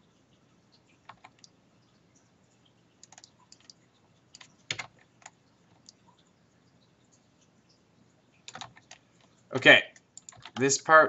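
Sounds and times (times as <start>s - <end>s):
computer keyboard keys tapping: 1.0s - 1.6s, 3.0s - 6.2s, 8.4s - 9.0s, 10.0s - 10.7s.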